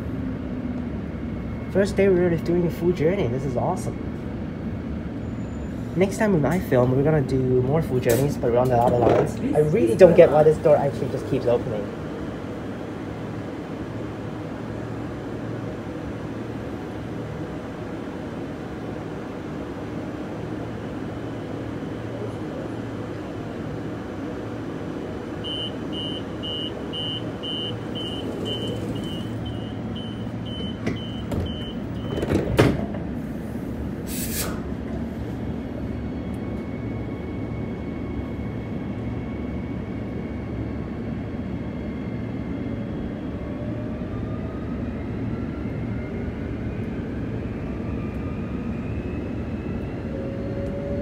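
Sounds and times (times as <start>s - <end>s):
train rumbling with rising whine: 0.0s - 51.0s
high door-warning beeps: 25.4s - 32.3s
sliding doors shutting with thud: 27.8s - 29.6s, 30.5s - 33.2s
brief air hiss: 34.0s - 34.7s.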